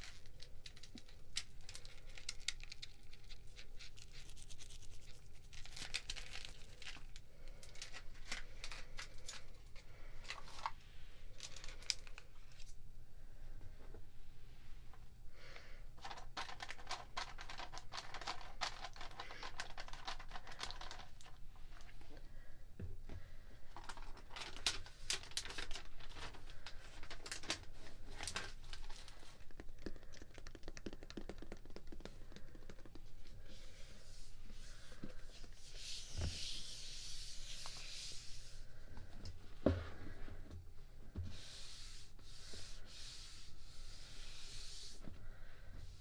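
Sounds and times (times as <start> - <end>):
soft rubbing hiss: 32.1 - 38.9, 40.8 - 46.0.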